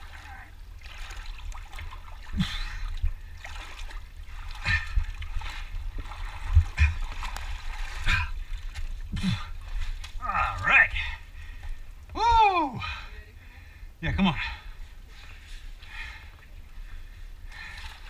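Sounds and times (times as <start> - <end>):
water splashing and sloshing: 0.0 - 18.0
dull low thumps: 2.3 - 13.0.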